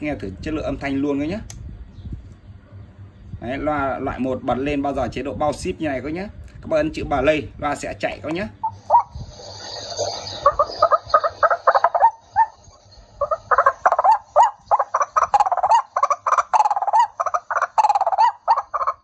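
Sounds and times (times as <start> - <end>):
bird calls through loudspeaker: 8.5 - 9.2, 9.9 - 19.0.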